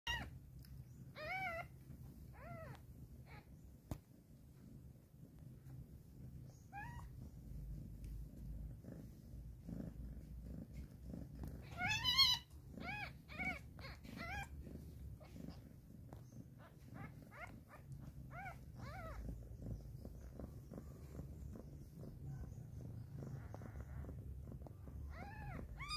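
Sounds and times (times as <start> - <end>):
low steady purr: 0.1 - 25.9
kitten squealing: 11.6 - 14.5, 25.1 - 25.9
kittens mewing: 25.0 - 25.9.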